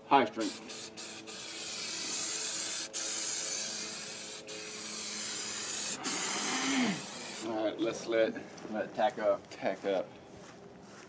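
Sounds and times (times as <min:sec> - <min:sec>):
aerosol spray hissing: 0:00.3 - 0:07.5.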